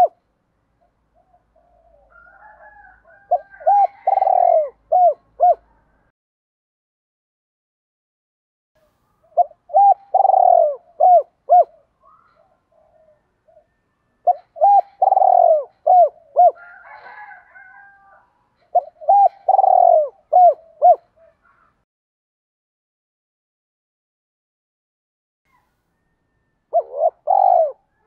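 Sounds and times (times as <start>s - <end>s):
dove cooing: 1.1s - 6.1s, 9.2s - 21.8s, 26.4s - 28.0s.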